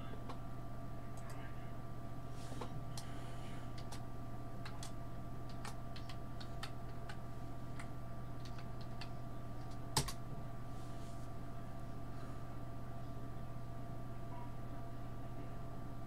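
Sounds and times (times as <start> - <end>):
low electrical hum: 0.0 - 16.0
keyboard keys clicking: 3.7 - 4.0, 4.6 - 7.2, 7.8 - 10.2.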